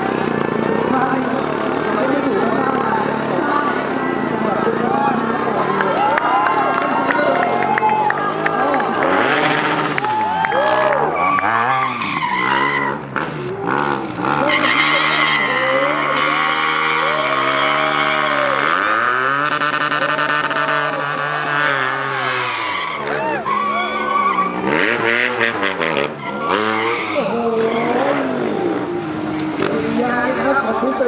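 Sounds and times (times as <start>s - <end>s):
tyre squealing in a burnout: 4.4s - 31.0s
motorcycle engine revving hard: 8.6s - 31.0s.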